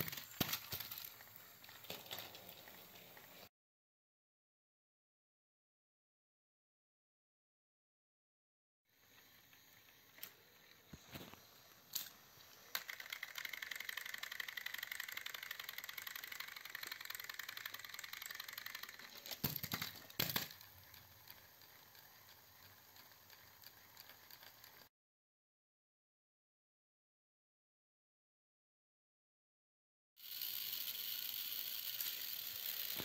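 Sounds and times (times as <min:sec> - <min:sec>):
plastic clatter: 0:00.0 - 0:01.2, 0:19.0 - 0:20.6
toy train motors whirring: 0:00.0 - 0:03.5, 0:08.9 - 0:24.9, 0:30.2 - 0:33.0.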